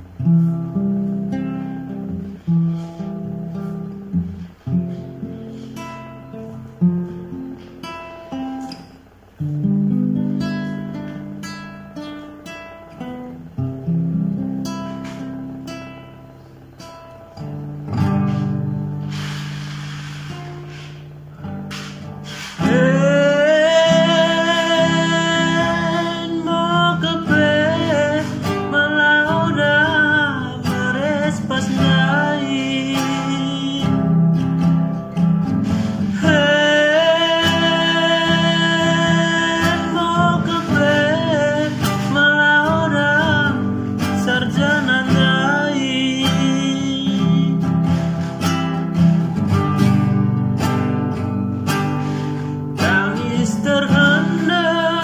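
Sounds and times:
acoustic guitar strumming: 0.0 - 55.0
man singing: 22.4 - 34.3, 35.7 - 48.3, 52.7 - 55.0.

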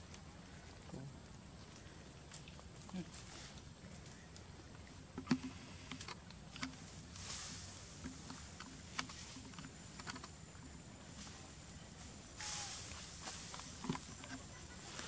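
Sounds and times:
short rustle: 6.7 - 9.5.

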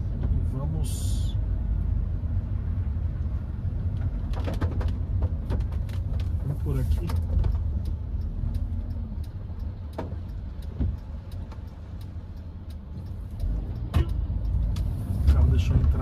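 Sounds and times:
car engine and tyres rumbling: 0.0 - 16.0.

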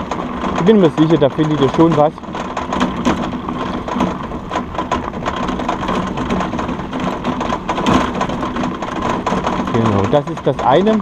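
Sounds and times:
rig wheels rattling on gravel: 0.0 - 11.0.

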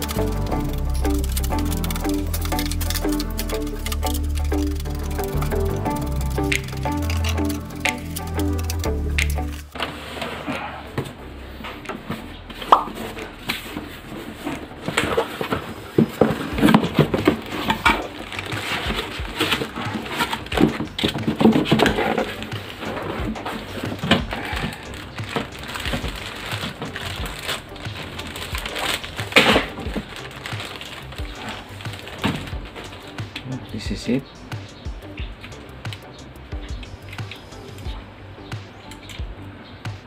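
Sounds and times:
plastic bag crinkling: 0.0 - 9.8, 13.0 - 33.1.

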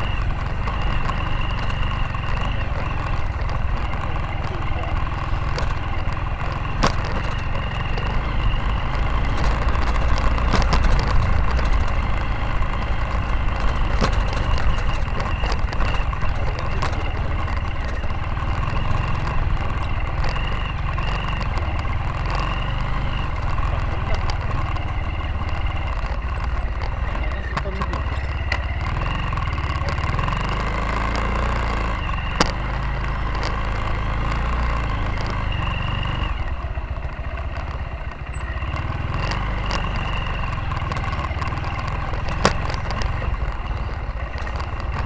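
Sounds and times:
motorcycle engine rumbling: 0.0 - 45.0.

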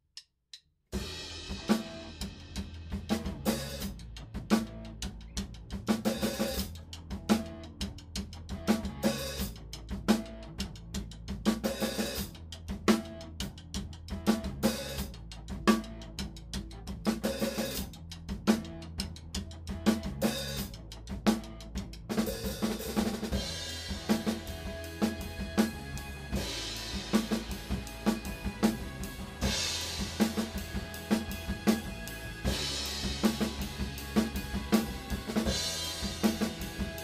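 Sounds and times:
rock drum kit groove: 0.9 - 37.0
cymbals: 22.3 - 37.0.

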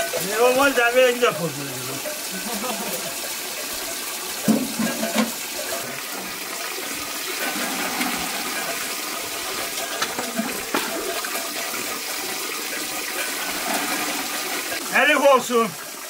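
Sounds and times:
water filling bucket: 0.0 - 16.0
bucket knocking against barrel: 4.4 - 5.5, 9.7 - 11.4.

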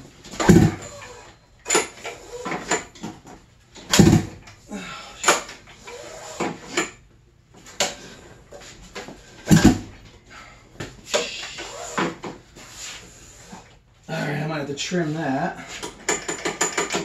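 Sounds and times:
recoil starter pulls thumping: 0.2 - 1.0, 3.8 - 4.5, 9.5 - 10.0
engine turning over: 0.4 - 1.0.

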